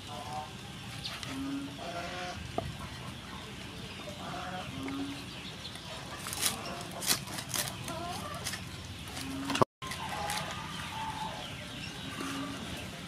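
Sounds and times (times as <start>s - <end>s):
cleaver crunching pork crackling: 4.3s - 11.3s.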